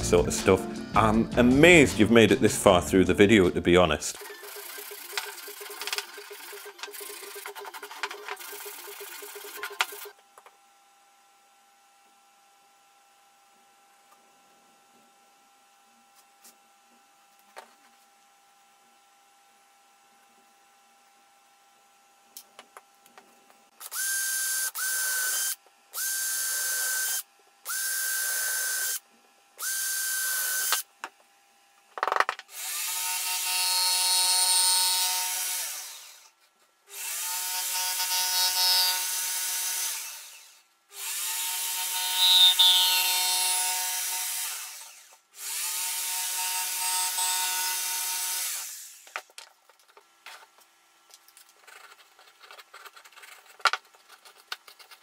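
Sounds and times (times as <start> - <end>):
power drill boring through board: 4.2 - 10.2, 23.8 - 29.0, 29.6 - 30.9, 32.5 - 49.2
jigsaw cutting board: 4.2 - 10.6, 22.5 - 50.7, 51.3 - 55.0.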